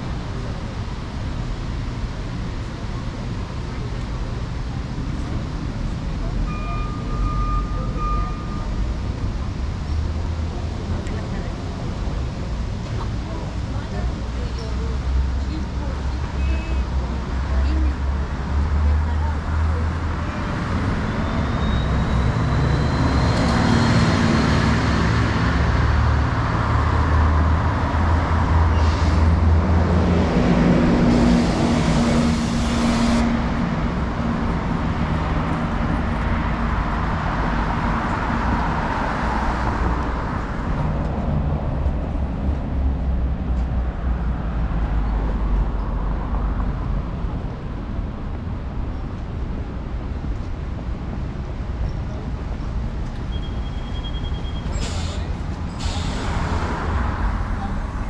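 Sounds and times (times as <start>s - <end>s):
cars and buses passing: 0.0s - 58.0s
brief hiss: 54.7s - 56.4s.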